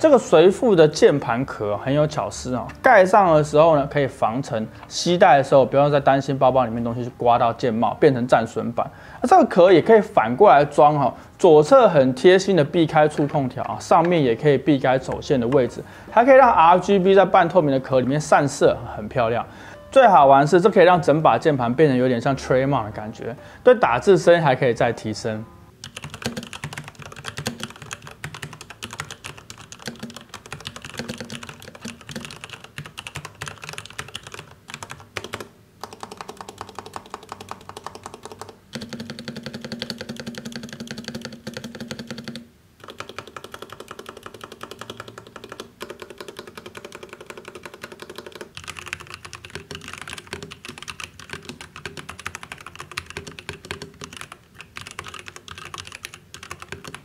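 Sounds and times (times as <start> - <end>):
typing on mechanical keyboard: 25.8 - 57.0.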